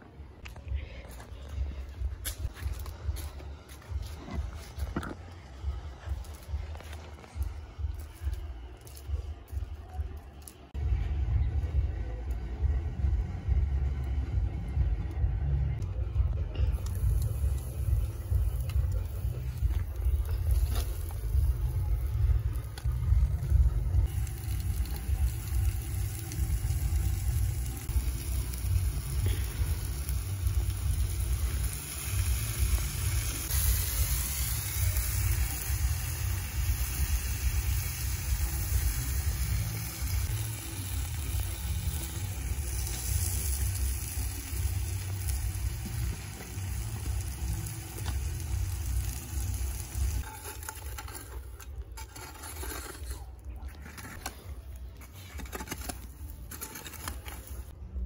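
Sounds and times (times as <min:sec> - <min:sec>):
steady hiss: 0:16.8 - 0:50.7.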